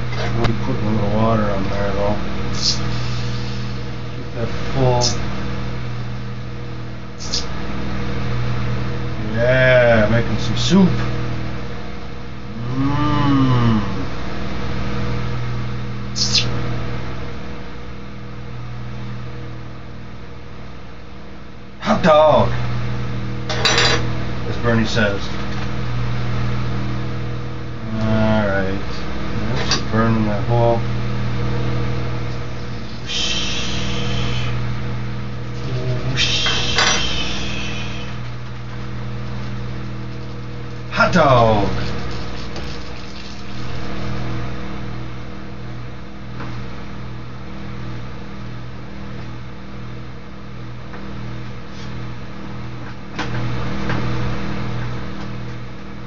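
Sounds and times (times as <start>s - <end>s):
electrical hum: 0.0s - 56.0s
hot metal sizzling: 2.5s - 4.0s, 35.4s - 38.2s, 39.7s - 44.2s.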